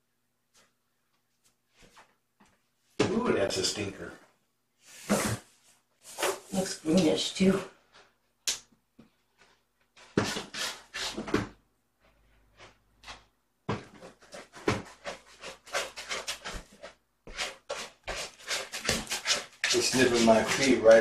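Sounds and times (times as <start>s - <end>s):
cat scratching in litter box: 14.0s - 21.0s.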